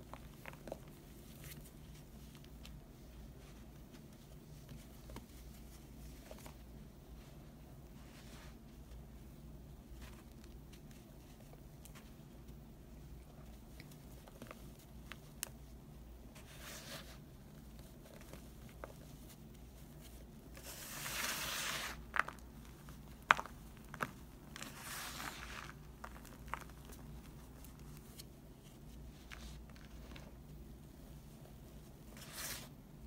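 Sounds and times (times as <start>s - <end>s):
hand raking dry powder: 20.6s - 22.5s, 23.2s - 26.7s.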